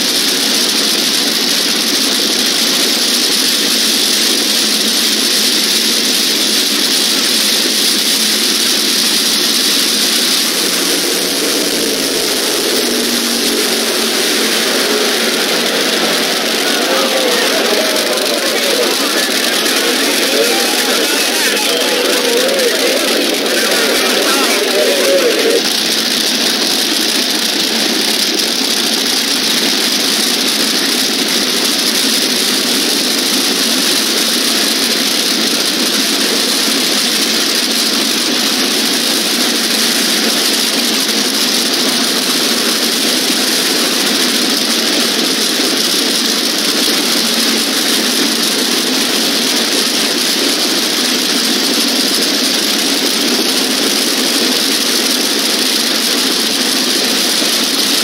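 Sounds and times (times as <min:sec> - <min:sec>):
race car engine idling: 0:08.0 - 0:32.2.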